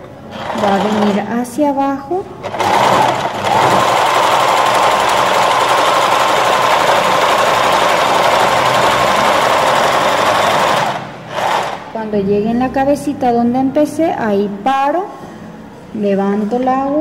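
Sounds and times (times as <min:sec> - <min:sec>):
sewing machine running: 0:00.0 - 0:01.4, 0:02.4 - 0:12.0.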